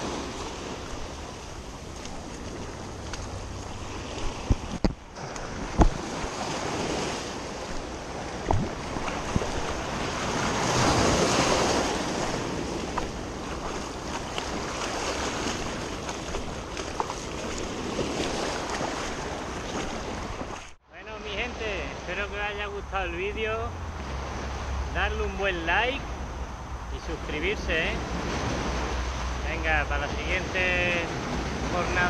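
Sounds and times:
small waves washing over stones: 0.0s - 20.8s
wind buffeting microphone: 0.0s - 20.8s.

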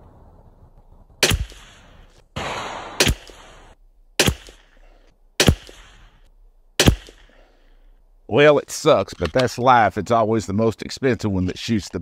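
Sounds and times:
rifle shots cracking: 1.2s - 7.5s.

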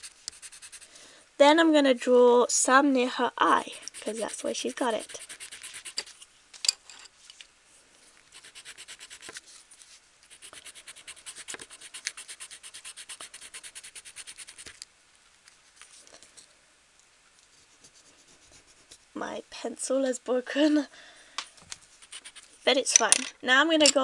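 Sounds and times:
pencil scratching on card: 0.0s - 0.9s, 3.4s - 6.1s, 8.3s - 9.4s, 10.3s - 14.8s, 17.6s - 19.0s, 21.9s - 22.6s.

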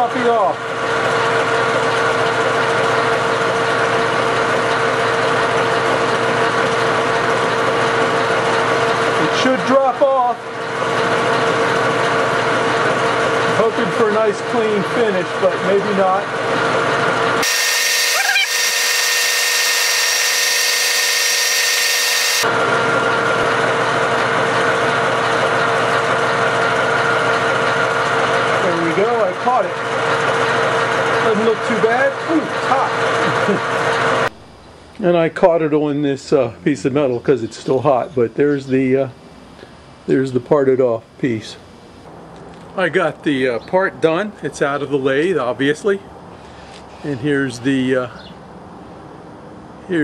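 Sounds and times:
metal lathe cutting: 0.0s - 34.3s
parting tool squeal: 17.4s - 22.5s
high-pitched whine: 17.4s - 23.2s.

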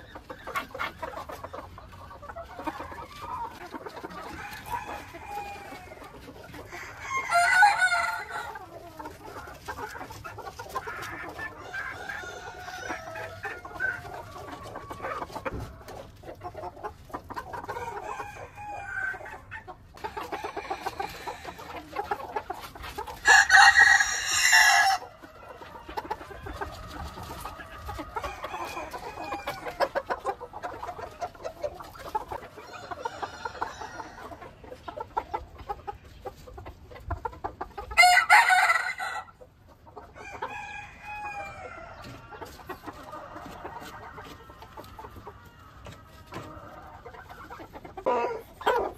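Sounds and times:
chickens clucking: 0.0s - 48.9s
rooster crowing: 4.4s - 6.0s, 6.7s - 8.6s, 11.6s - 13.8s, 23.2s - 25.1s, 28.2s - 29.9s, 38.0s - 39.3s, 40.2s - 42.1s.

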